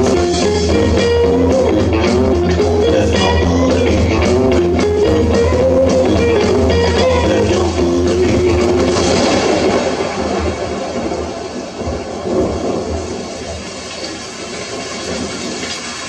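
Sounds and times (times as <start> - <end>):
bass and drums: 0.0 - 10.4
electric guitar melody: 0.0 - 10.5.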